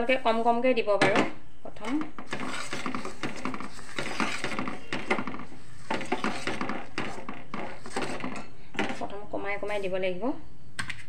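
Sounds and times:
spoon scraping a steel pot: 1.8 - 9.9.

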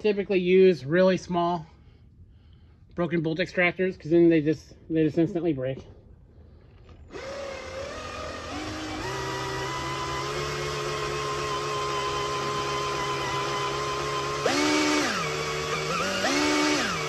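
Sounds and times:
cordless drill running: 6.6 - 17.0.

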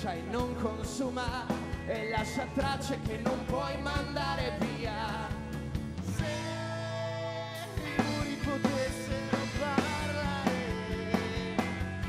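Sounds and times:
pop-rock band playing: 0.0 - 12.0
drum beat: 7.8 - 12.0.

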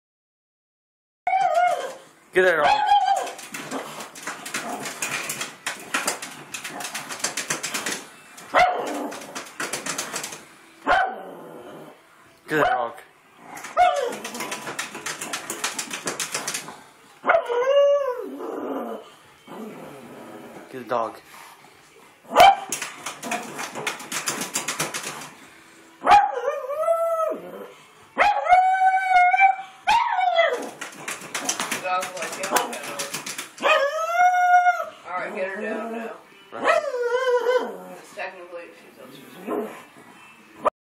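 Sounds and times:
rapid clicks: 3.3 - 10.4, 13.6 - 16.7, 22.7 - 25.4, 30.6 - 33.7
dog barking: 8.5 - 9.1, 10.9 - 11.2, 22.3 - 23.5, 26.0 - 26.4
dog howling: 26.1 - 30.8, 33.6 - 35.0.

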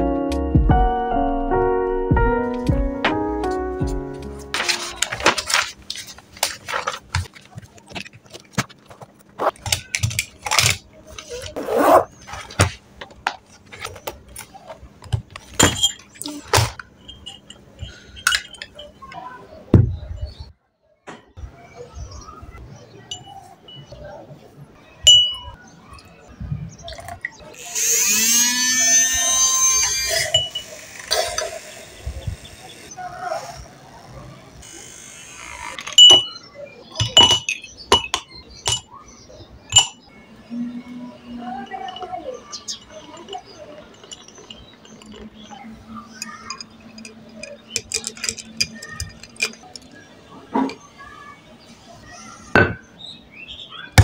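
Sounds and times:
spoon clinking against glass: 17.0 - 19.0, 25.1 - 25.6, 30.3 - 30.8, 35.9 - 36.4, 37.0 - 38.9, 39.7 - 40.0, 41.7 - 49.9
milk frother motor whining: 27.6 - 36.0.

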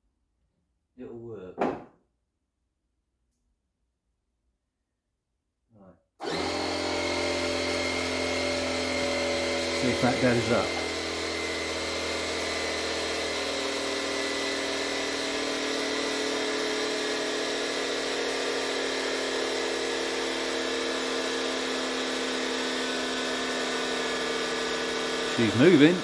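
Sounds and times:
electric air pump motor whine: 6.2 - 26.0.

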